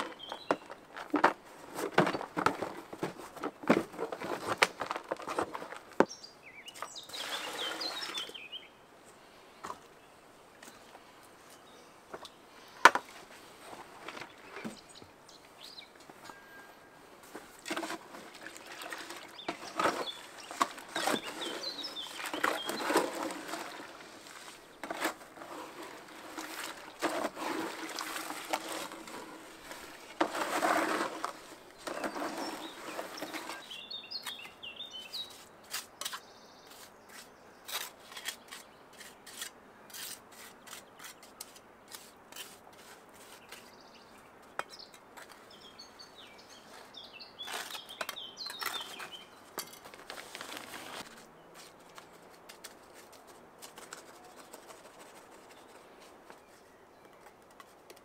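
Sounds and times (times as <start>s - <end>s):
birds chirping: 0.0s - 1.3s, 2.0s - 41.3s, 43.2s - 52.2s
trowel scraping and tapping mortar: 35.7s - 43.7s.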